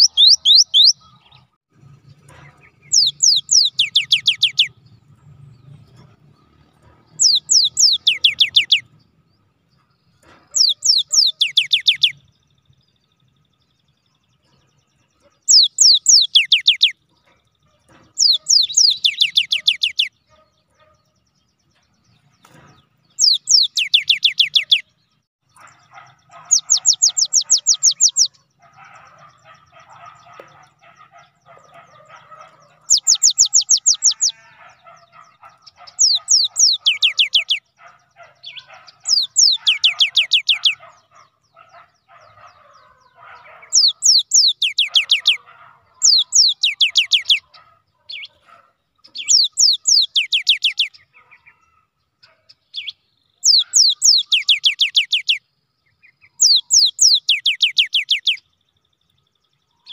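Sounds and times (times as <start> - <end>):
bird whistling rapid notes: 0.0 - 1.0, 10.6 - 12.2.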